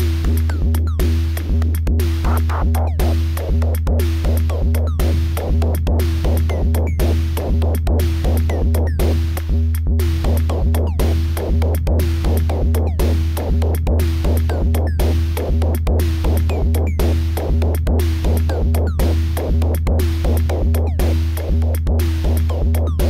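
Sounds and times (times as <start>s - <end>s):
sharp clicking ticks: 0.2s - 15.0s
deep bass pulse: 2.2s - 3.2s.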